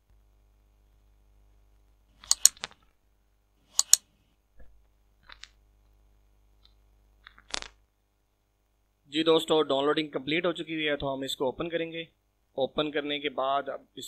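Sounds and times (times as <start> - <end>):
sharp clicks: 2.2 - 2.8, 3.8 - 4.1.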